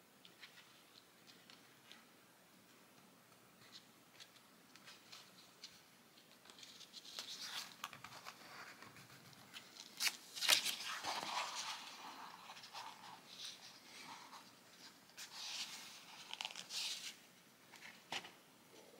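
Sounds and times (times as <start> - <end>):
paper rustling and scraping: 6.5 - 18.3.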